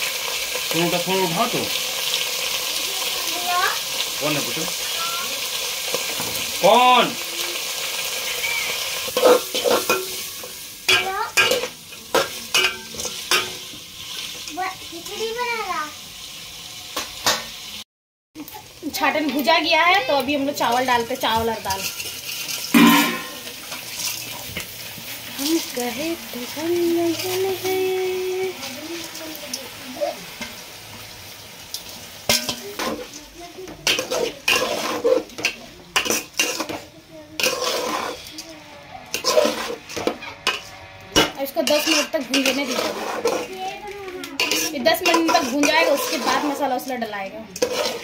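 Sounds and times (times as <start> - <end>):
chicken frying in oil: 0.0 - 17.8, 18.4 - 48.0
metal spatula scraping pot: 8.0 - 14.3, 20.6 - 24.7, 32.3 - 33.2, 33.8 - 48.0.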